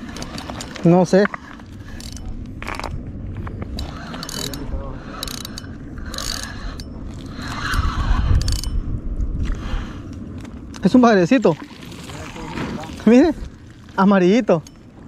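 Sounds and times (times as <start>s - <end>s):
fishing reel gears whirring: 0.0s - 2.8s, 3.7s - 8.9s.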